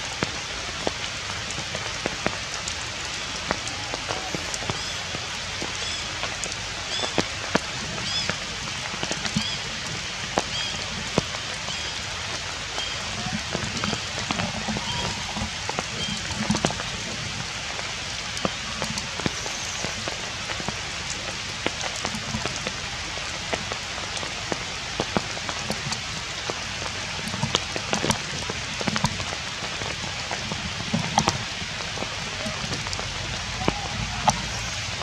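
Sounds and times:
rain falling on puddles: 0.0 - 35.0.

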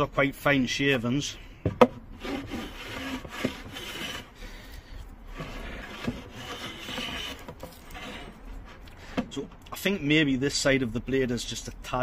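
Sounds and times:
hand plane shaving wood: 2.1 - 4.4, 5.3 - 8.8.

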